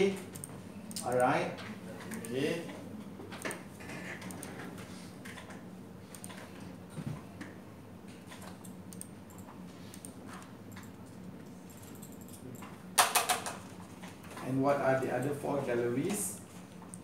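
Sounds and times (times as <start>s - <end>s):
steady low hum: 0.0s - 17.0s
keyboard typing: 5.3s - 6.6s, 8.3s - 13.6s.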